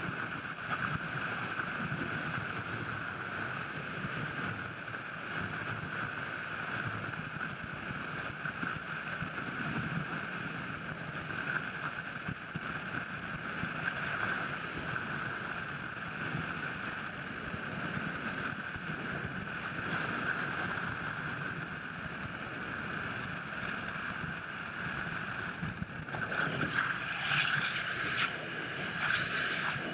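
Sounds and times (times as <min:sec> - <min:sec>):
muffled wind rush: 0:00.0 - 0:29.9.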